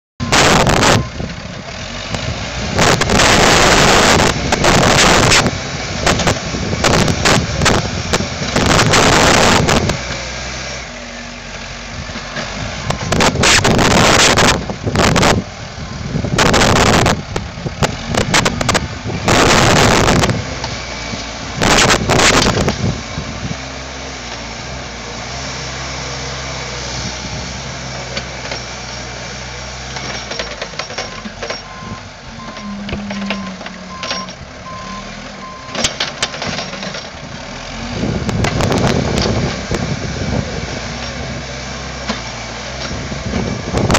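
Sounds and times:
diesel engine running: 0.2 - 43.9
wind on microphone: 11.9 - 23.7, 37.8 - 41.5, 42.9 - 43.9.

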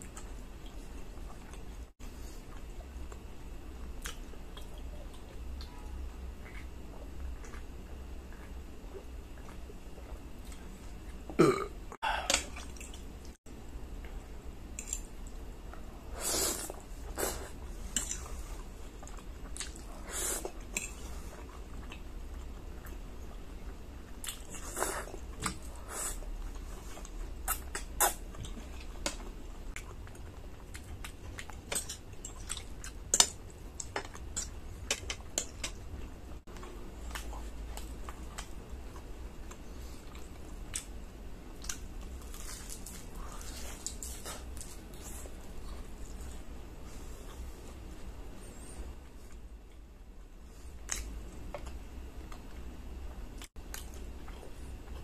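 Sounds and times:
loud burp: 11.4 - 11.7.

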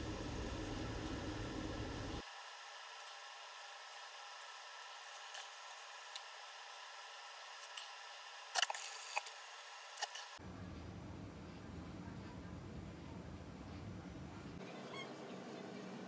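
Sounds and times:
steady low hum: 0.0 - 2.2, 10.4 - 16.0.

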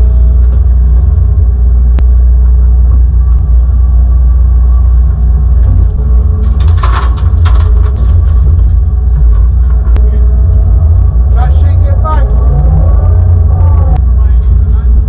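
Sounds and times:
excavator diesel engine drone: 0.0 - 15.0
clattering: 5.8 - 10.0.

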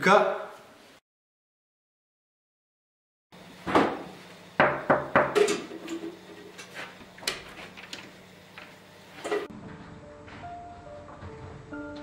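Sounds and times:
sharp knocks on door: 4.6 - 5.4.

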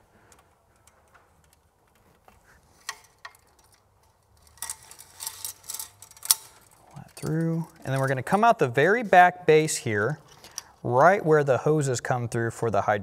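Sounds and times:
wiring clicking and tapping: 0.0 - 8.6.

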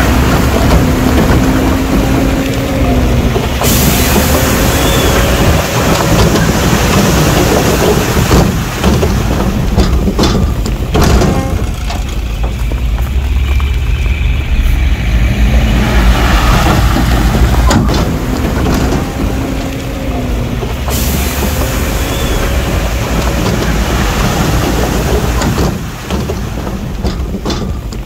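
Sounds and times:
heavy diesel engine rumble: 0.0 - 28.0.

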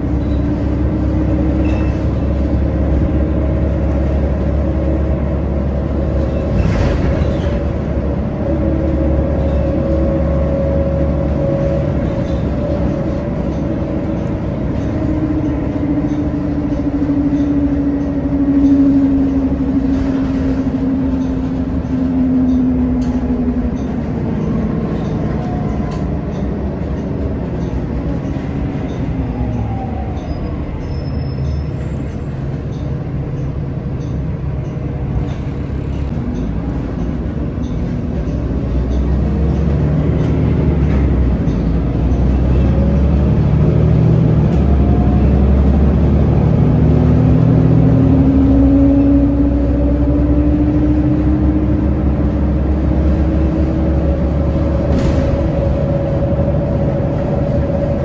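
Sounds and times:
bus engine running: 0.0 - 58.0
road noise: 0.0 - 58.0.

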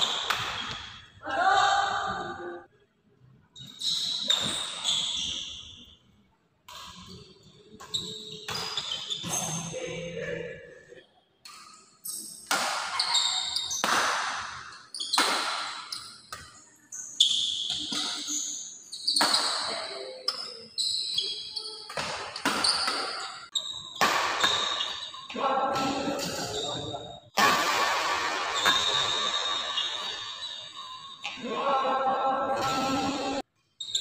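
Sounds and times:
racket hitting shuttlecock: 0.0 - 1.0, 12.4 - 16.6, 17.7 - 18.3, 21.9 - 23.4, 24.0 - 26.5, 27.3 - 30.3.

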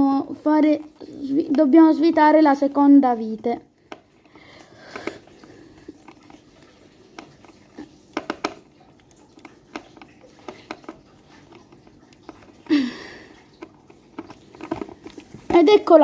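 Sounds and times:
screwdriver clicking and scraping: 13.6 - 15.6.

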